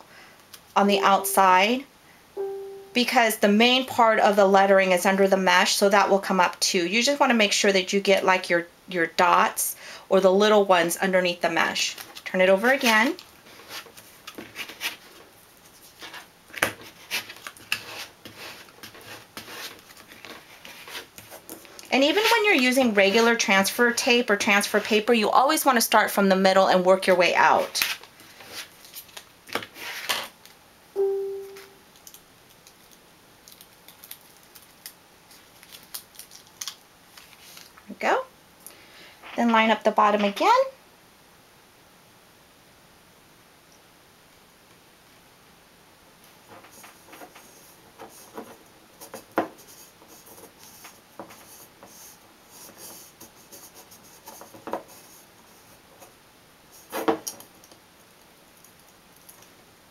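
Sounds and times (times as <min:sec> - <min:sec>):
short chime-like tone: 0:02.4 - 0:03.0, 0:31.0 - 0:31.8
plastic card scratching tape: 0:17.0 - 0:22.4
paper backing peeling crackles: 0:27.7 - 0:30.6, 0:32.0 - 0:37.9
light scratches and taps: 0:46.5 - 0:56.1.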